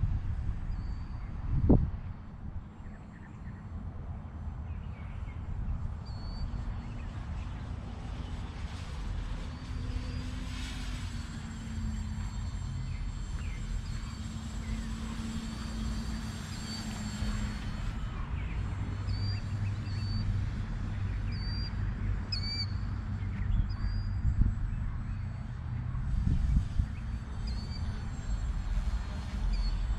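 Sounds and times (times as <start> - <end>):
model plane motor humming: 7.9 - 21.1, 26.1 - 29.9
bird chirps: 21.1 - 24.2.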